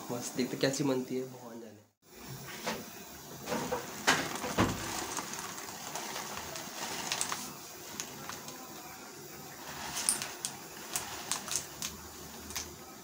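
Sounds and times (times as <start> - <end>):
water boiling in a pan: 2.0 - 13.0
plastic packet crinkling: 3.8 - 8.6, 9.6 - 12.7.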